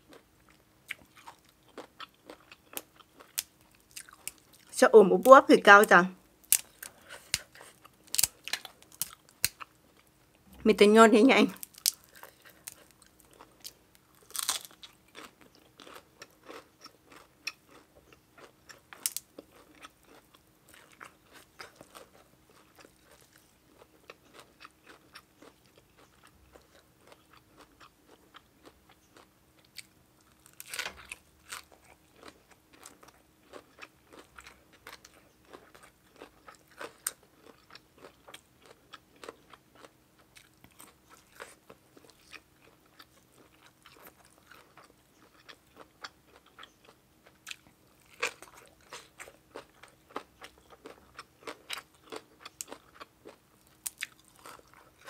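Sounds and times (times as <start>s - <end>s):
chewing and crunching food: 0.0s - 10.6s, 11.5s - 55.0s.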